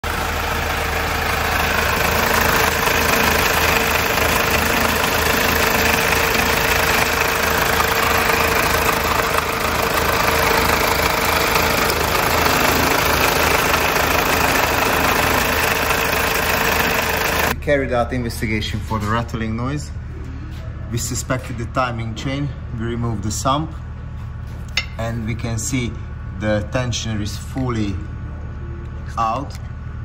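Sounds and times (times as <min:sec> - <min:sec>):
engine rattling: 0:00.0 - 0:17.6
diesel engine idling: 0:00.0 - 0:20.1.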